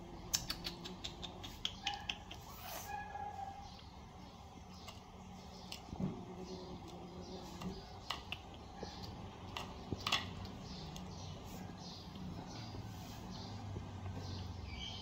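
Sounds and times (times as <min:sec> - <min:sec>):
kittens chewing and licking: 0:00.2 - 0:02.6, 0:03.7 - 0:12.8
small sharp clicks: 0:00.3 - 0:02.5.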